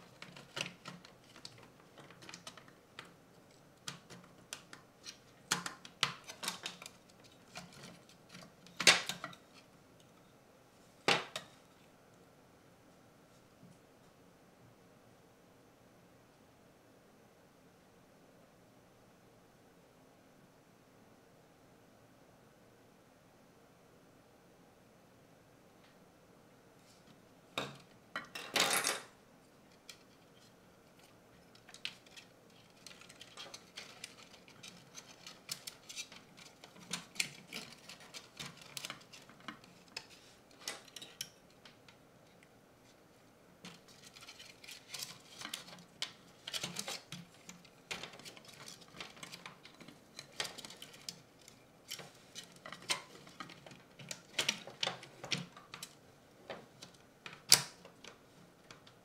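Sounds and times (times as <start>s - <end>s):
plastic parts clicking and rustling: 0.0s - 10.1s, 29.7s - 42.4s, 43.6s - 59.0s.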